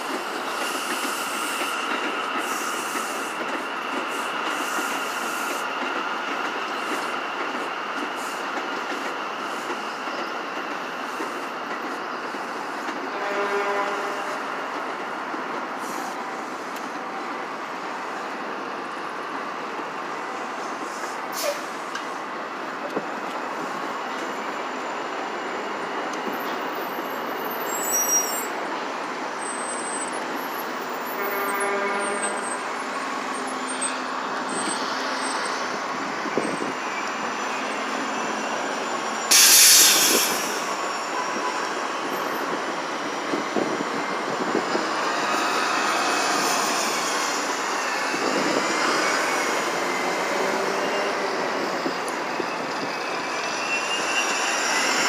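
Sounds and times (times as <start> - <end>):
city street traffic: 0.0 - 55.0
elevated train passing: 0.0 - 55.0
air brakes hissing: 0.5 - 5.7, 15.8 - 16.8, 20.8 - 22.0, 38.7 - 41.4
bus drive whining: 29.4 - 55.0.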